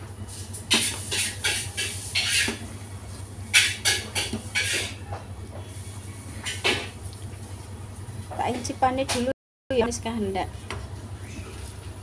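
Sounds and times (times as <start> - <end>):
metal ladle scraping a pot: 0.8 - 2.6.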